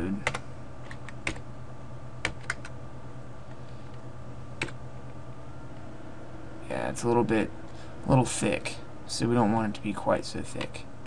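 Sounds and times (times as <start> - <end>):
steady low hum: 0.0 - 11.0
computer keys and mouse clicking: 0.2 - 1.4, 2.2 - 2.8, 4.6 - 4.8.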